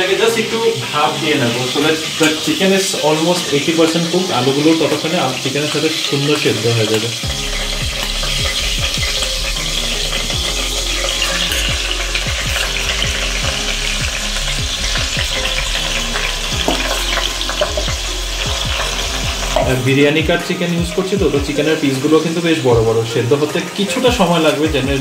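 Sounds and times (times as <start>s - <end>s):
food sizzling in a pot: 0.0s - 25.0s
spatula scraping a pot: 4.5s - 20.0s.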